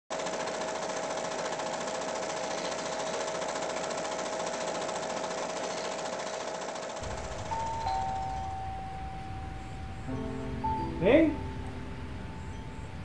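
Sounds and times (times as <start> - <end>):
film projector clattering: 0.1 - 10.1.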